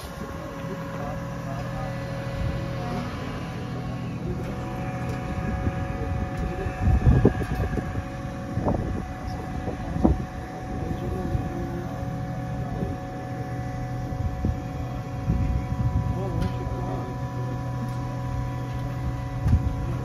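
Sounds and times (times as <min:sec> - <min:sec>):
excavator engine rumbling: 0:00.0 - 0:20.0.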